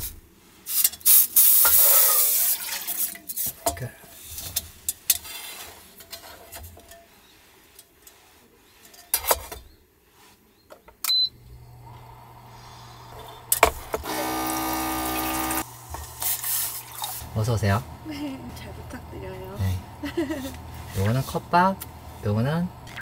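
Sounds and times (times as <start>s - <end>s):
low electrical hum: 11.2s - 23.0s
buzzing motor whine: 11.3s - 16.3s, 17.2s - 23.0s.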